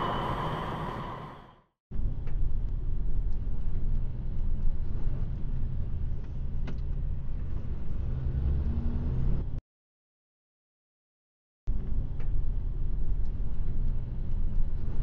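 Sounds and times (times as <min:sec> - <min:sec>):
lorry engine rumble inside cab: 0:02.0 - 0:09.6, 0:11.7 - 0:15.0.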